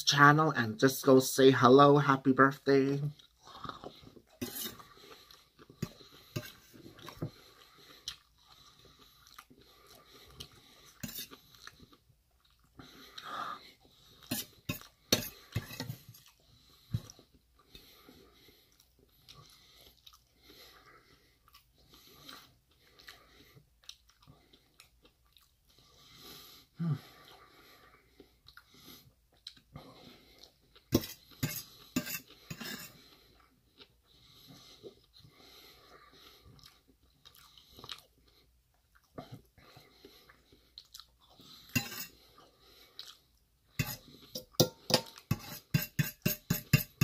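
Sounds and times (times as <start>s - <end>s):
chewing soft food: 3.1s - 26.3s, 27.0s - 44.3s
metal spoon scraping steel bowl: 4.4s - 4.8s, 6.3s - 6.8s, 11.0s - 11.4s, 14.3s - 16.0s, 31.0s - 33.0s, 41.7s - 42.2s, 43.8s - 47.0s.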